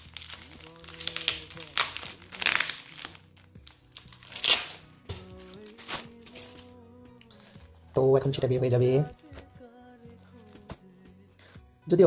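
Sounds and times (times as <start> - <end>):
plastic packaging crinkling: 0.0 - 6.8, 10.1 - 10.8
background music: 0.0 - 12.0.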